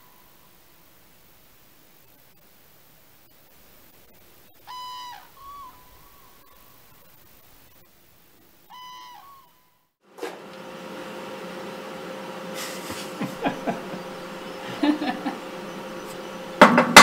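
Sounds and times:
low hum: 0.0 - 16.9
faint outdoor hiss: 0.0 - 17.0
distant bird hoot: 4.5 - 7.4, 8.6 - 9.9, 12.1 - 16.6.

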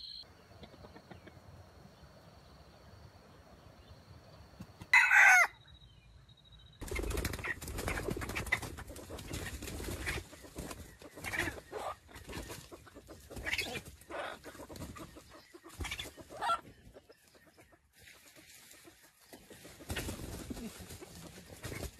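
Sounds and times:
chicken clucking: 0.1 - 1.9, 7.3 - 21.9.

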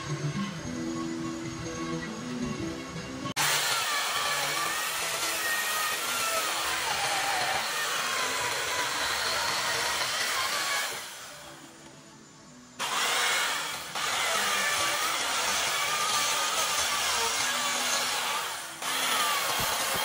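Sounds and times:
chainsaw cutting wood: 3.4 - 11.6, 12.8 - 20.0.

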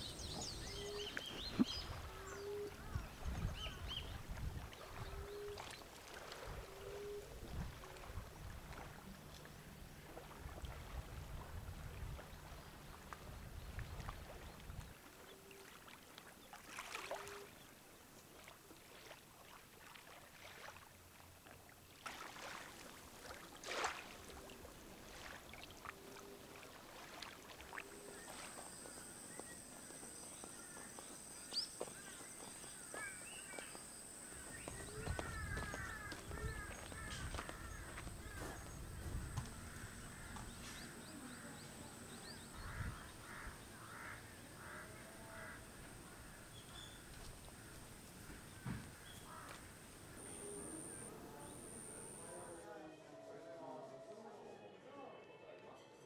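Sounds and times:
faint bird calls: 0.0 - 4.2, 27.7 - 52.6
low rumble of water and wind: 0.0 - 31.6, 33.9 - 50.2
high-pitched insect call: 27.8 - 43.3, 49.2 - 52.6.

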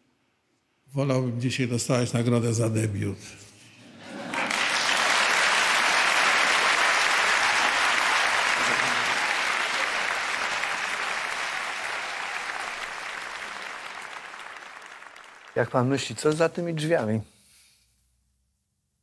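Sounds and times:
audience applauding: 4.0 - 17.2.

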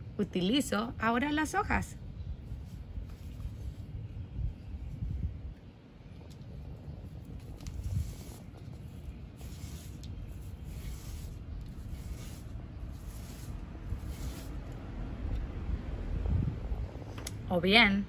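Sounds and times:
steady low rumble: 0.0 - 18.0
brush swishing on paper: 2.4 - 5.1, 6.8 - 14.9.

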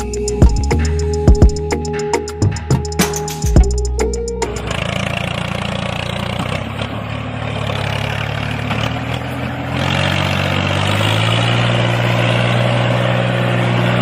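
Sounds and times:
model tractor motor drone: 4.6 - 14.0.

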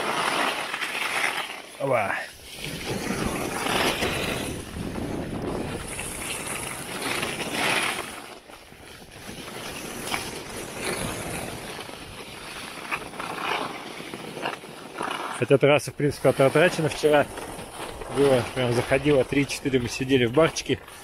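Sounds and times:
skis carving on snow: 0.0 - 21.0
wind on microphone: 2.4 - 8.2.

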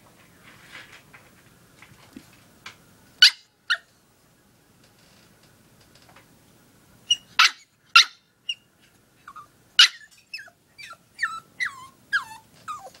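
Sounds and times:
small dog yapping: 7.1 - 8.6, 9.3 - 13.0
dog whimpering: 9.2 - 13.0.

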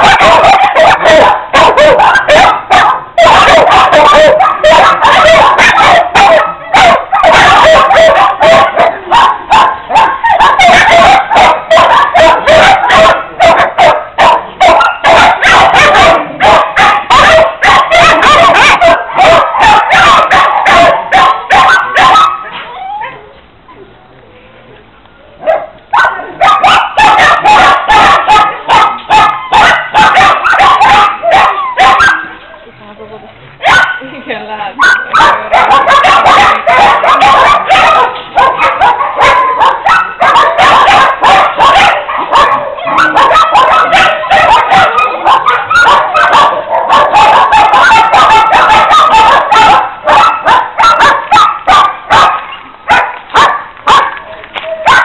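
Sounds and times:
many dogs barking: 0.0 - 23.2, 25.4 - 32.4, 33.6 - 34.2, 34.8 - 55.0.

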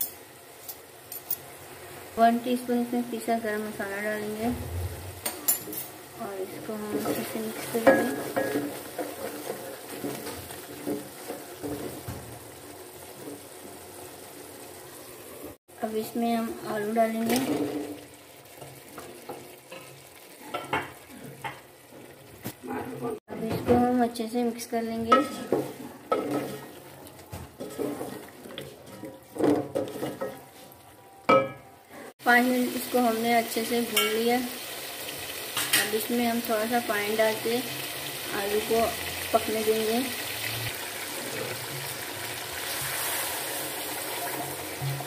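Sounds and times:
wooden spoon stirring in a pot: 6.4 - 14.4, 25.1 - 31.0
spoon scraping and knocking pot: 6.9 - 12.2, 25.1 - 26.8, 27.4 - 30.7.

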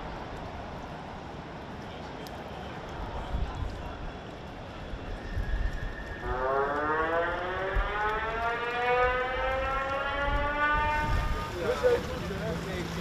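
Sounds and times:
warning siren rising in pitch: 5.6 - 12.0
low rumble of wind and water: 9.2 - 13.0.

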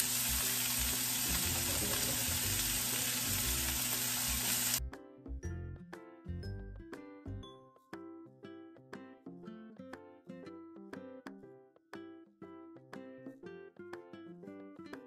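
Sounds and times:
meat sizzling in a pan: 0.0 - 4.8
soft background music: 0.0 - 15.0.

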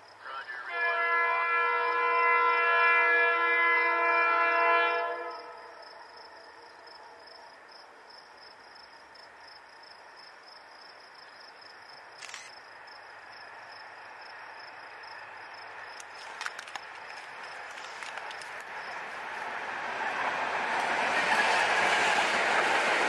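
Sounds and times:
high insect chirp: 0.0 - 0.3, 5.0 - 19.6
diesel freight train approaching: 0.0 - 10.8, 12.8 - 23.0.

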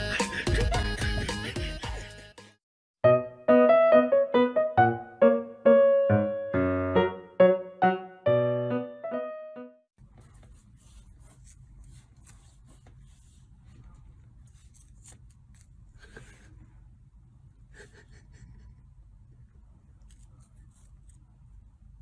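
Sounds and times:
piano tune: 3.0 - 9.9.

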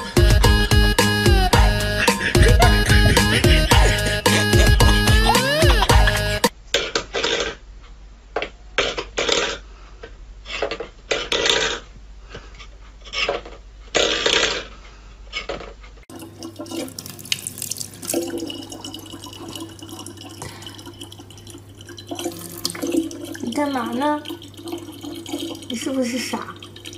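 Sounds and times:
low hum: 1.5 - 6.4.

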